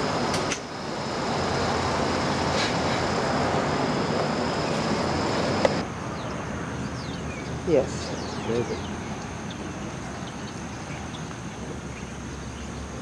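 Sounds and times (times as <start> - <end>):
car road noise: 0.0 - 6.8.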